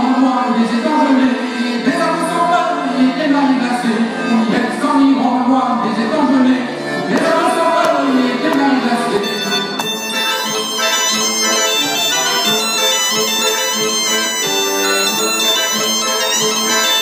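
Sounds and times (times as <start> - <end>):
man singing into a microphone: 0.0 - 9.5
accordion holding low note: 0.0 - 17.0.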